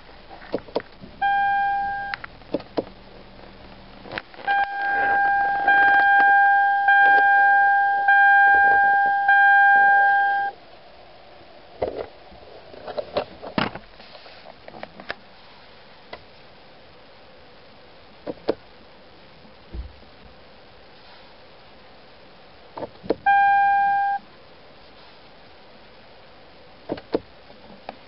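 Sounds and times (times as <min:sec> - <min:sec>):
dashboard warning chime: 0:01.2 - 0:02.2, 0:04.5 - 0:10.5, 0:23.3 - 0:24.2.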